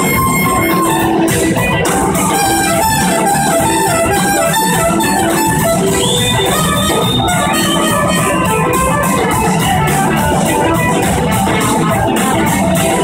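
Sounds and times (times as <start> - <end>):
horns: 0.0 - 10.2
drums: 0.0 - 13.0
electric guitars: 0.0 - 13.0.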